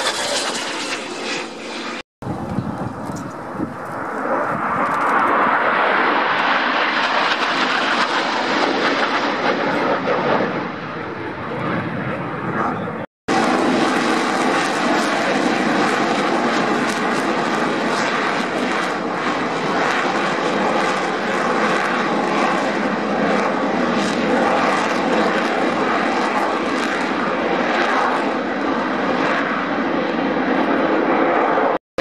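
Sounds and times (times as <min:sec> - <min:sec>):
jets passing overhead: 0:00.0 - 0:31.8.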